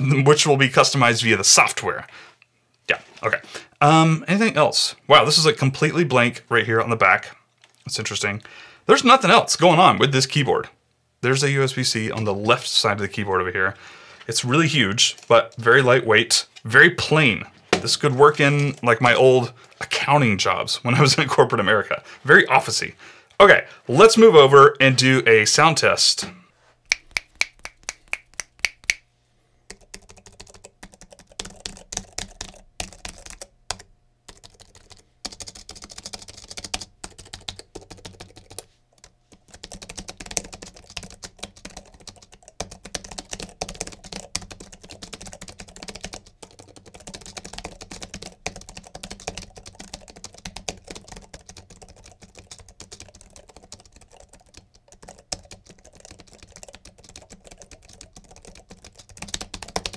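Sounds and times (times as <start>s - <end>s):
keyboard typing: 26.9s - 29.0s, 29.7s - 59.9s.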